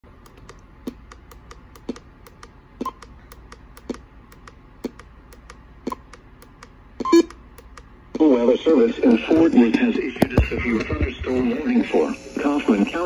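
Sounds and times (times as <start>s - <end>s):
soft regular ticking: 0.1s - 8.0s.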